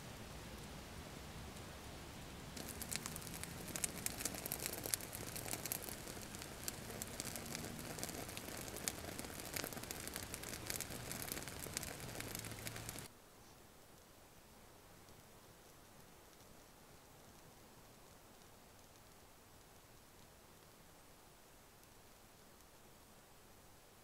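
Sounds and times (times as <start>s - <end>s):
fire crackling and popping: 2.4s - 13.1s, 15.1s - 20.8s.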